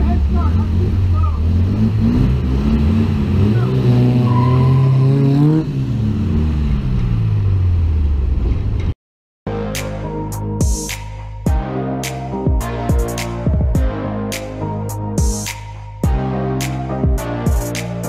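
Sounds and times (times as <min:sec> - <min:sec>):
car engine revving: 0:00.0 - 0:08.9.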